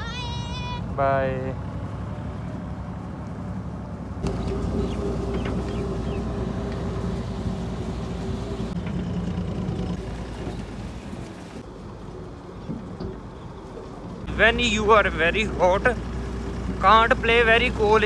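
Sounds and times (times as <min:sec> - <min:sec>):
combine harvester engine drone: 0:00.8 - 0:18.0
bird chirps: 0:04.2 - 0:07.0.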